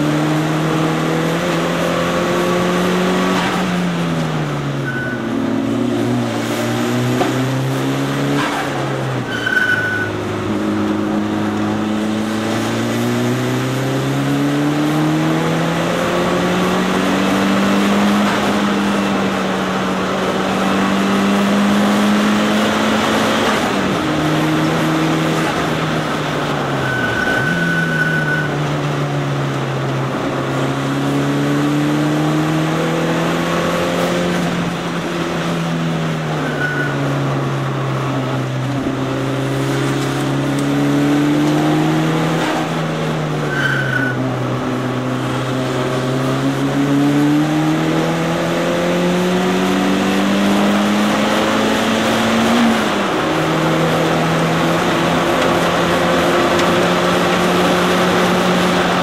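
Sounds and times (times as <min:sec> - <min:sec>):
car engine revving through gears: 0:00.0 - 0:59.0
road and wind noise: 0:00.0 - 0:59.0
short high-pitched squeals: 0:04.8 - 0:05.4, 0:09.2 - 0:10.2, 0:26.8 - 0:28.6, 0:36.4 - 0:37.1, 0:43.5 - 0:44.2.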